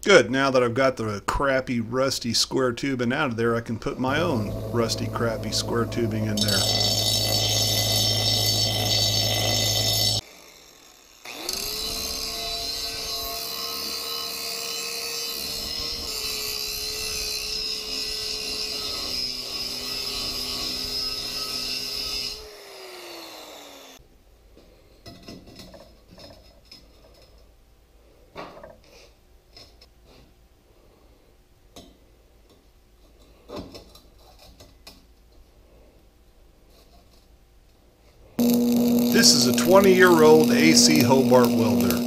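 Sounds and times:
angle grinder grinding steel: 3.9 - 24.0, 38.4 - 42.0
bench grinder grinding steel: 4.0 - 24.0, 38.4 - 42.0.

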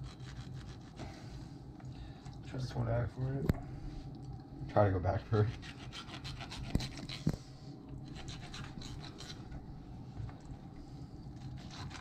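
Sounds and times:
knife scraping fish on cutting board: 0.0 - 1.1, 5.4 - 7.4, 8.1 - 9.6, 11.4 - 12.0.

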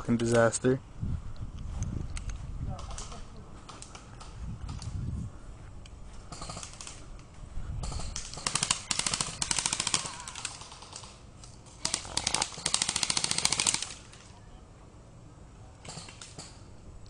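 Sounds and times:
airsoft gun bursts: 7.8 - 14.2.

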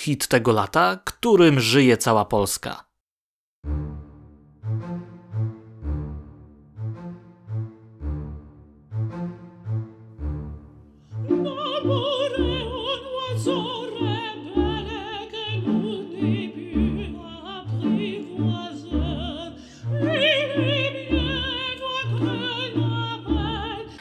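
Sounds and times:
woman singing with vibrato: 11.2 - 24.0.

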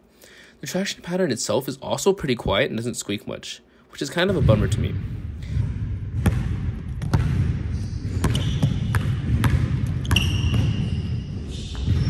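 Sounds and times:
basketball bouncing on hardwood floor: 4.3 - 12.0
shoes squeaking on floor: 10.0 - 12.0.

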